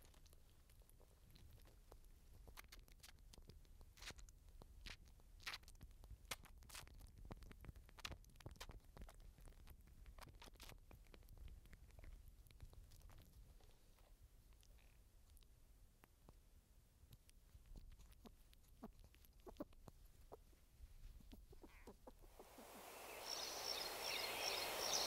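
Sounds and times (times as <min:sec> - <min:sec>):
squirrel gnawing and chewing: 0:00.0 - 0:25.0.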